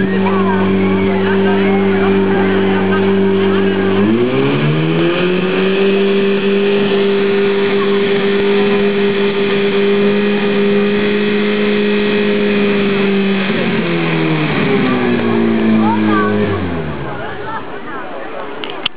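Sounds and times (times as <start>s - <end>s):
pump engine running at high revs: 0.0s - 18.9s.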